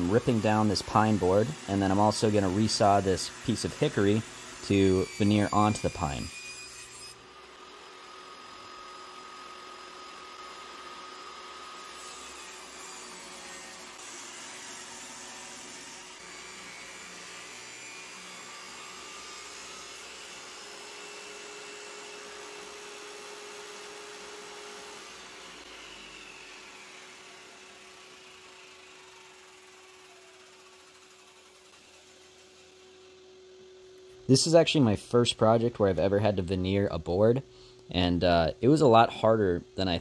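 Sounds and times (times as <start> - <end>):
table saw cutting wood: 0.0 - 33.8.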